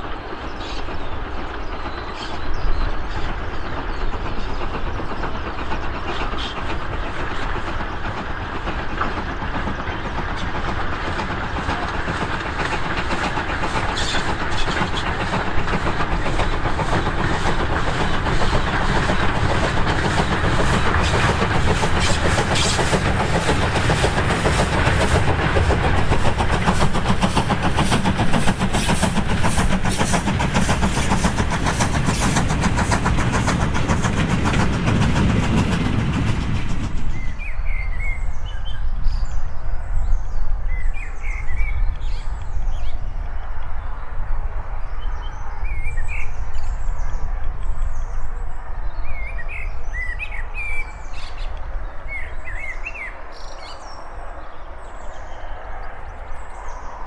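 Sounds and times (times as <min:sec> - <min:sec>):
birds chirping: 0:00.0 - 0:44.2
goods train passing: 0:00.0 - 0:57.0.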